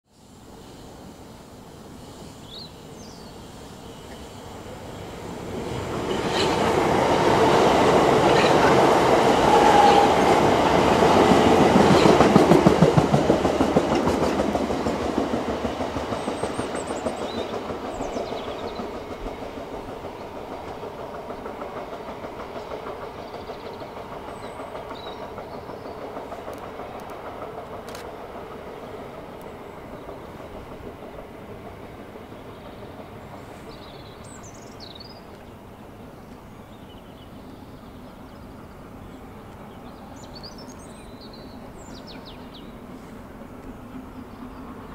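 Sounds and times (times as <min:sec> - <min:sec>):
train wheels clattering over rails: 0:04.0 - 0:36.8.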